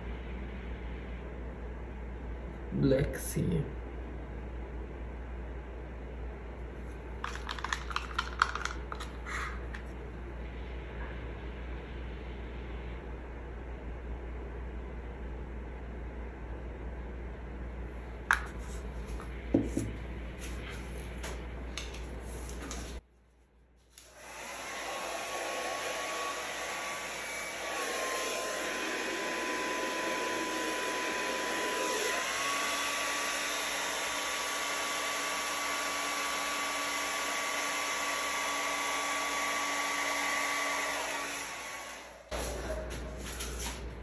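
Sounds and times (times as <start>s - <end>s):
hair dryer whining: 24.0s - 42.8s.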